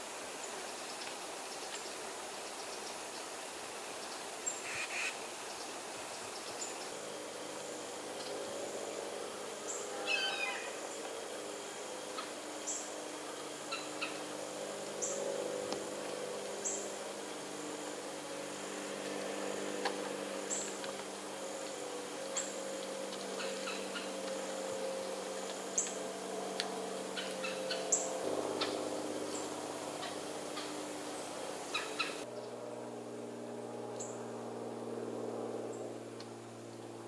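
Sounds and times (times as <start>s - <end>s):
faint low hum: 3.9s - 37.0s
bird call zigzagging down: 4.6s - 5.2s
birds chipping: 23.3s - 26.0s, 27.1s - 32.6s.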